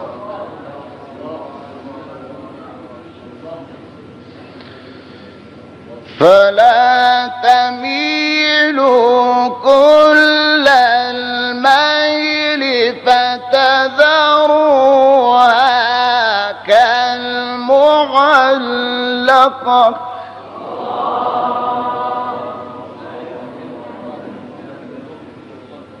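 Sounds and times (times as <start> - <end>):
person chanting melodic recitation: 6.1 - 24.6.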